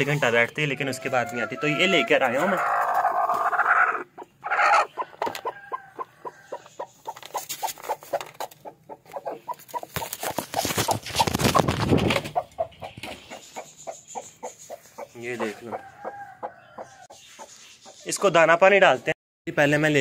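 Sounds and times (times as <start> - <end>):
hen clucking: 0.0 - 18.5
rustling: 9.1 - 12.3.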